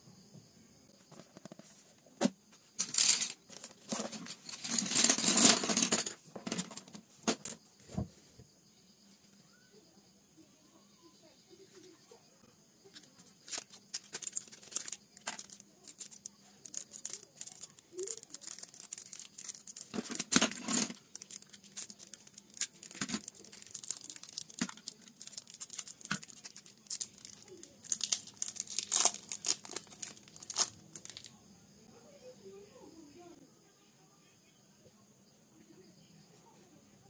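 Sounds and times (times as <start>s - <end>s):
plastic wrapper crinkling and tearing: 13.4s - 31.3s.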